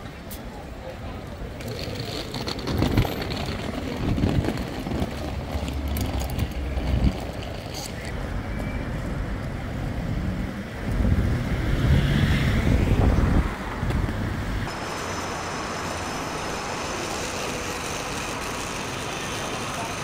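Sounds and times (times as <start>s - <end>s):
steady traffic hum: 0.0s - 20.0s
vehicle engine rumbling past: 8.2s - 20.0s.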